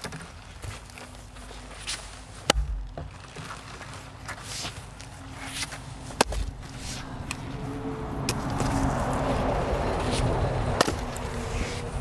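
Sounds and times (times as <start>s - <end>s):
axe splitting log: 2.4s - 3.7s, 5.5s - 6.7s, 10.7s - 11.2s
passing vehicle hum: 4.8s - 12.0s.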